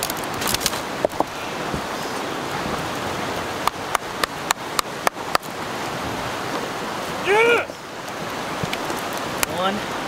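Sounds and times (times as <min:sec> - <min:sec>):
twigs snapping: 0:00.0 - 0:01.3.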